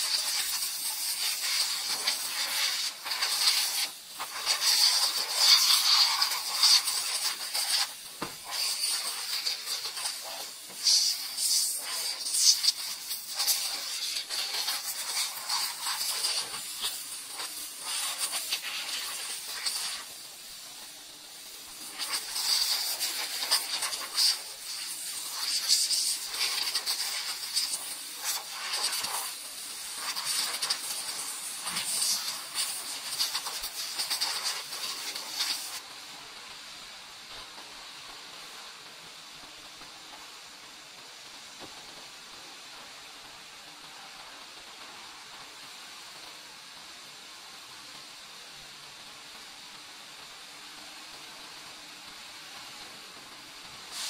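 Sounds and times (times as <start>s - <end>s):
pressure spray gun hissing: 0.0s - 35.8s
faint background noise: 0.0s - 54.0s.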